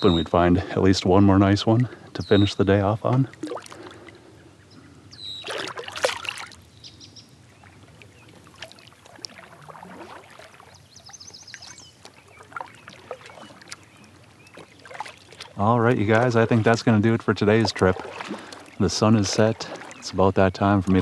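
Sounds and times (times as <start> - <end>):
water drips: 3.0 - 4.2, 5.4 - 6.6, 7.6 - 21.0
fish splashing: 3.3 - 4.2, 5.4 - 6.7, 7.6 - 20.2
kayak and paddle knocks: 17.6 - 18.8.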